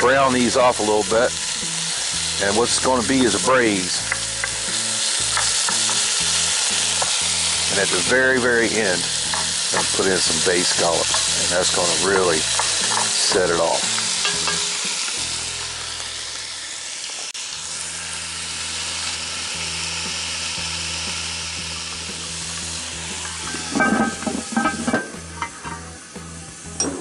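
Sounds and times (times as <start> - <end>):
meat sizzling in oil: 0.0 - 26.8
utensil clattering in pot: 12.5 - 13.5, 14.2 - 14.8, 23.5 - 25.9.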